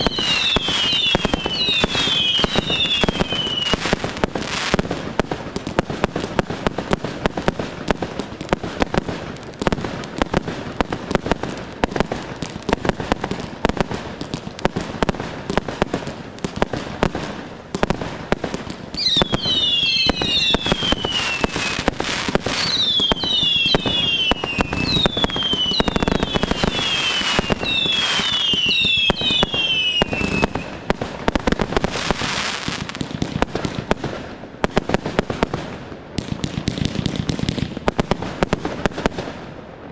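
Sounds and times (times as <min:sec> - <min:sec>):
falling firework whistles: 0:00.0 - 0:04.8, 0:18.9 - 0:31.0
fireworks bangs and crackle: 0:00.0 - 0:39.9.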